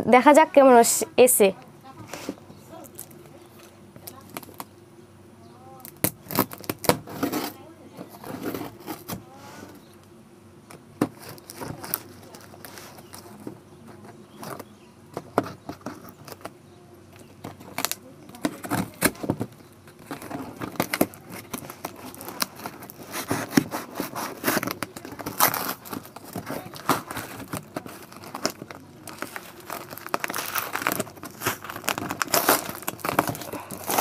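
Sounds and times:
cardboard tearing: 0:05.9 - 0:09.2, 0:17.6 - 0:34.0
knife slitting tape and cardboard: 0:06.0 - 0:07.6, 0:20.0 - 0:34.0.

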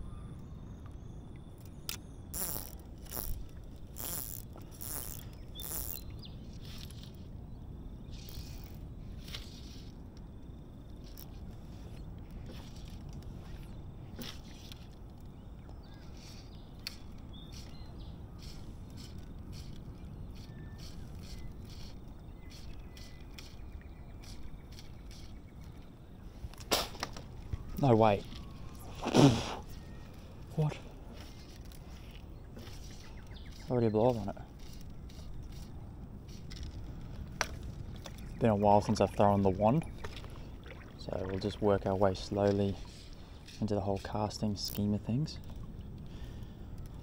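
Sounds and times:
faint bird chirps: 0:00.0 - 0:03.3, 0:04.0 - 0:08.8, 0:11.8 - 0:26.4, 0:27.4 - 0:29.0, 0:29.6 - 0:35.6
fishing reel ratcheting buzz: 0:01.9 - 0:06.1, 0:08.1 - 0:09.9.

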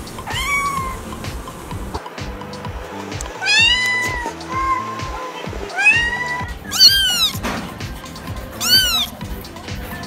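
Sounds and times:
background music: 0:00.0 - 0:10.0
kitten meowing: 0:00.2 - 0:01.1, 0:03.4 - 0:07.4, 0:08.6 - 0:09.2.

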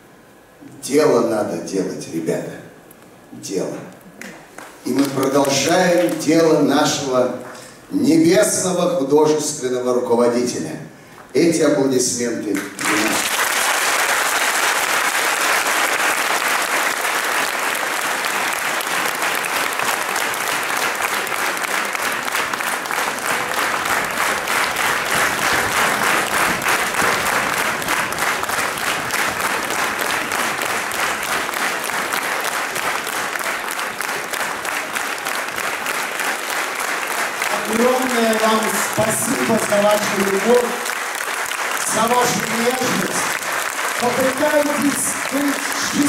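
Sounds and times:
audience applauding: 0:04.2 - 0:06.6, 0:12.6 - 0:46.0.

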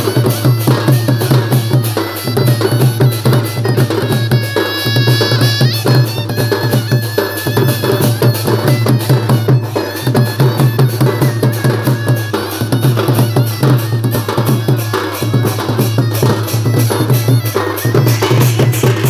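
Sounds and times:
drums playing folk rhythm: 0:00.0 - 0:19.0.

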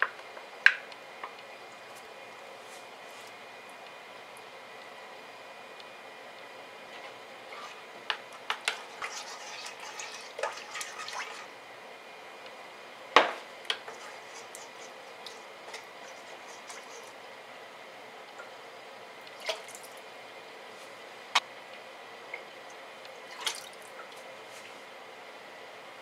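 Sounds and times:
spoon stirring broth: 0:06.9 - 0:11.5, 0:13.7 - 0:17.2
liquid sloshing: 0:08.6 - 0:11.5, 0:23.2 - 0:24.2.

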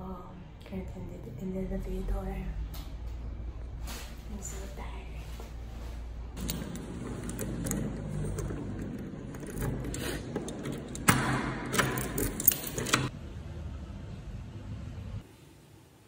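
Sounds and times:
door lock clicking: 0:06.4 - 0:13.1
keys jangling: 0:06.4 - 0:13.1.

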